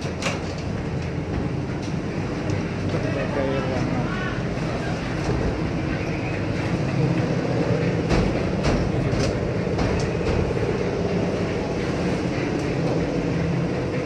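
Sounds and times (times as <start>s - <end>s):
concrete mixer rumbling: 0.0s - 14.0s
sharp knocks and clatters: 7.8s - 13.2s.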